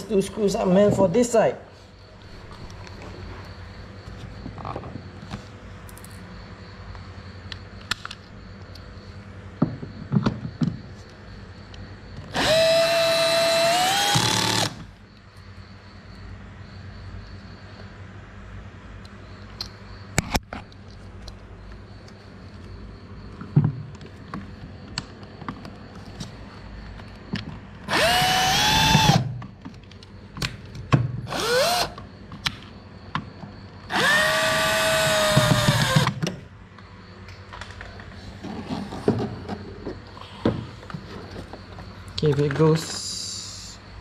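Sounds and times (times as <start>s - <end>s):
cordless drill whining: 12.3s - 14.8s, 27.9s - 29.2s, 31.3s - 32.0s, 33.9s - 36.2s.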